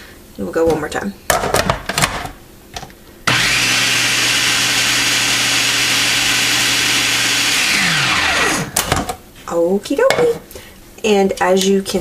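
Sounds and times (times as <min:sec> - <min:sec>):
food processor motor running: 0:03.3 - 0:08.8.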